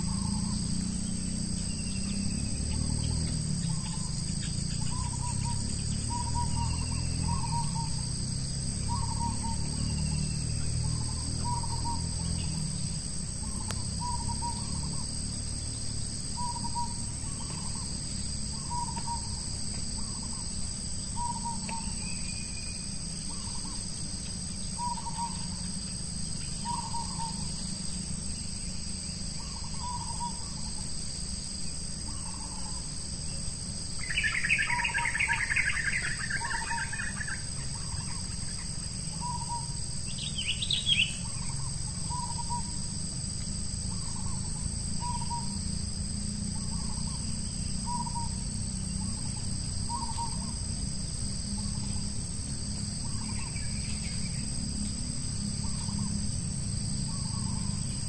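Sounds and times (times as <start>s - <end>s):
high insect drone: 0.0s - 58.0s
bird hooting: 2.7s - 8.1s, 8.8s - 10.0s, 10.8s - 12.7s, 13.4s - 15.0s, 16.4s - 17.9s, 18.5s - 19.4s, 21.2s - 23.8s, 24.8s - 25.6s, 26.6s - 27.6s, 29.4s - 30.8s, 32.0s - 32.9s, 34.0s - 42.8s, 43.9s - 45.6s, 46.6s - 48.4s, 49.0s - 50.6s.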